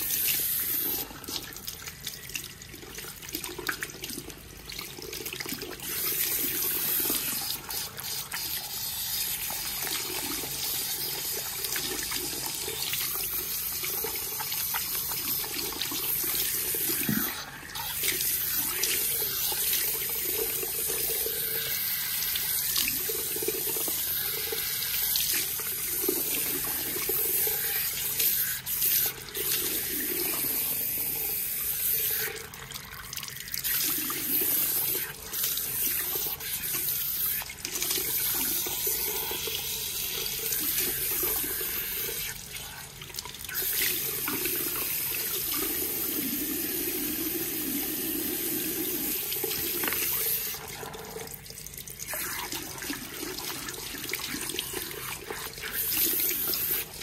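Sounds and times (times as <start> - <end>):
shower head spraying water: 55.0 - 57.0.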